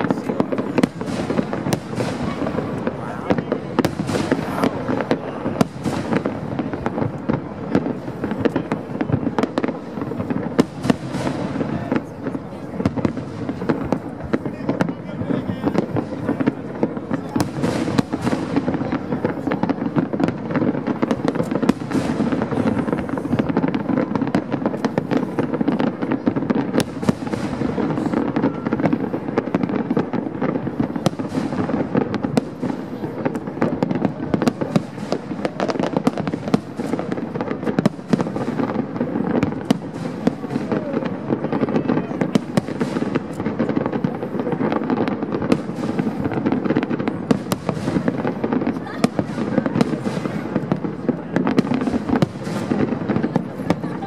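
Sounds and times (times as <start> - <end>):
fireworks bangs and crackles: 0.0 - 54.0.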